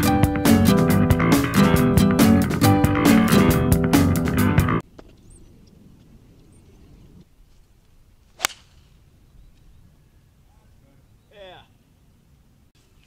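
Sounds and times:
guitar music: 0.0s - 4.8s
golf club striking ball: 8.4s - 8.8s.

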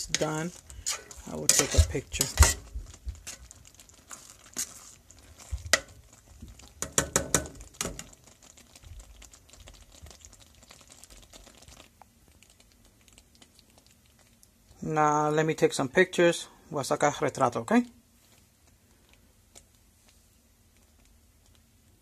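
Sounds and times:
spoon knocking and scraping pan: 0.0s - 3.5s, 4.5s - 8.2s
sauce simmering: 0.0s - 15.8s, 17.3s - 22.0s.

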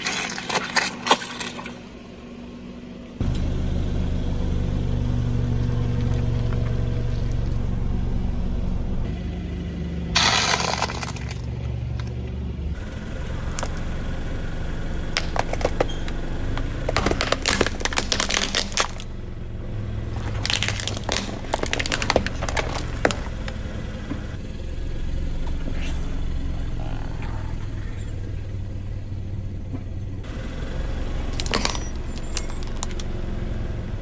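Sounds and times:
tyre crushing snacks and plastic: 0.0s - 1.8s, 10.2s - 12.2s, 15.1s - 19.2s, 19.8s - 23.8s, 31.3s - 33.1s
car engine running: 0.0s - 34.0s.

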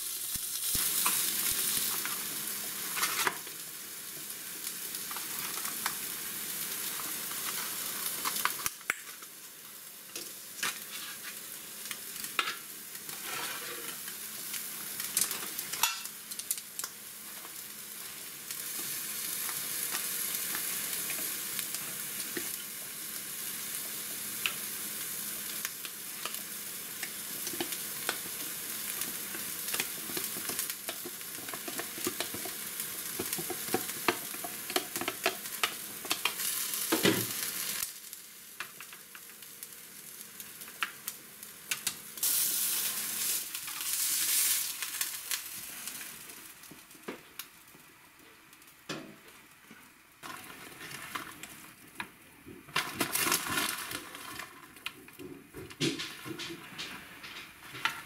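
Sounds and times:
steady hiss: 0.0s - 30.9s, 35.5s - 54.9s.

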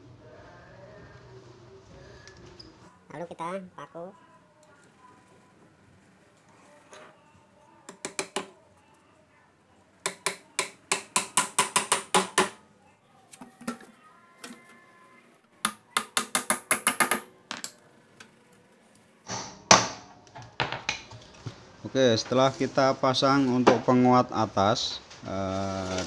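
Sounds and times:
hammer tapping nails into wood: 10.1s - 12.6s, 15.7s - 17.3s.

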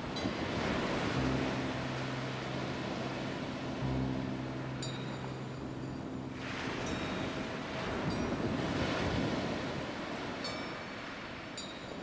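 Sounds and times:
wind on microphone: 0.0s - 12.0s
wave breaking on sand: 6.4s - 10.4s.

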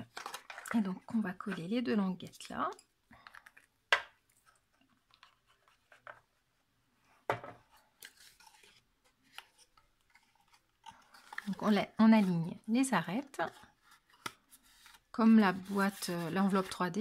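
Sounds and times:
paper rustling: 13.4s - 17.0s.

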